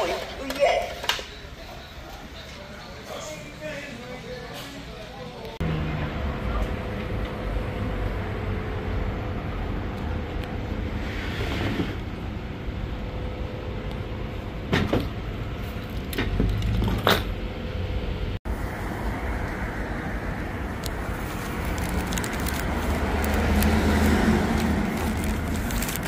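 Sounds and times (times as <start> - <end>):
low outdoor rumble: 12.0 - 26.0
paper wrapping crackling: 20.9 - 26.0.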